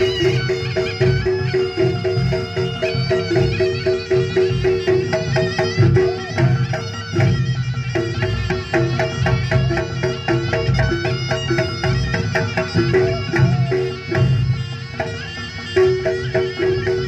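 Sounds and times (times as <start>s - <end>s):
steady drum beat: 0.0s - 15.2s
reedy wind instrument melody: 0.0s - 17.0s.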